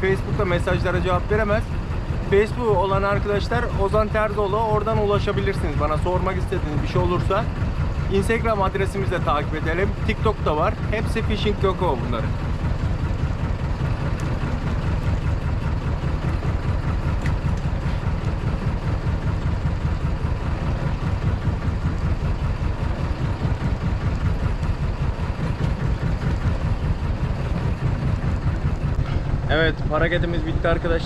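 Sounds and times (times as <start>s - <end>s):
boat engine rumbling: 0.0s - 31.0s.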